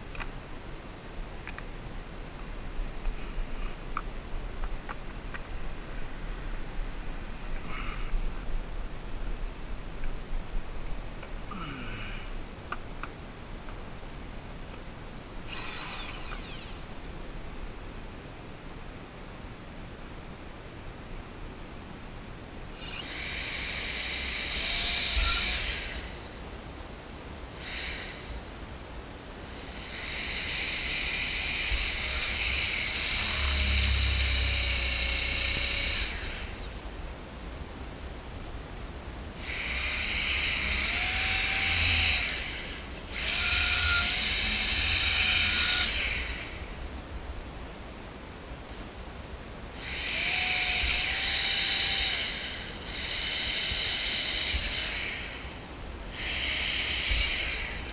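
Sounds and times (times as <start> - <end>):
electric drill boring through plastic pipe: 15.5 - 17.0, 22.8 - 26.5, 27.6 - 28.6, 29.4 - 36.8, 39.4 - 46.9, 49.7 - 57.9.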